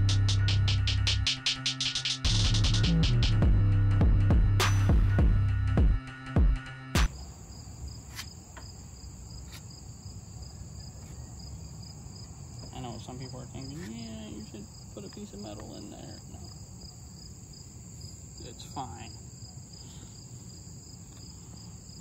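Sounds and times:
insects chirring: 7.1s - 22.0s.

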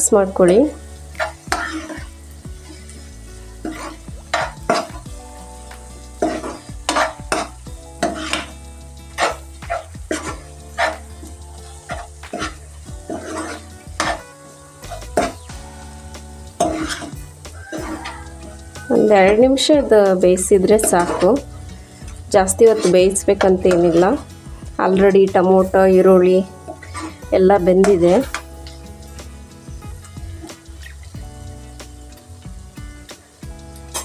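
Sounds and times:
masala sizzling in oil: 0.0s - 34.0s
ladle scraping frying pan: 1.2s - 5.1s, 6.2s - 15.5s, 16.6s - 19.4s, 20.7s - 24.6s, 26.6s - 28.8s.

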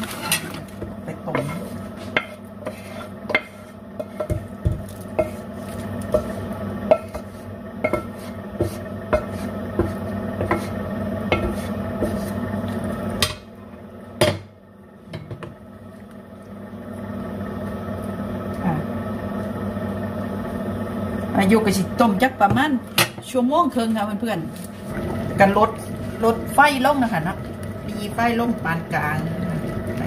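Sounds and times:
steady hum: 0.0s - 30.0s
utensil knocking against pot: 11.3s - 11.6s.

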